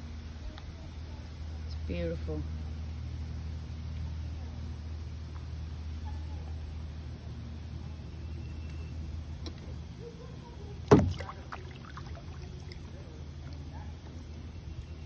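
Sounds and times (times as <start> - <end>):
steady low rumble: 0.0 - 15.0
paddle slapping water: 10.8 - 13.7
small splashes and drips: 10.8 - 13.9.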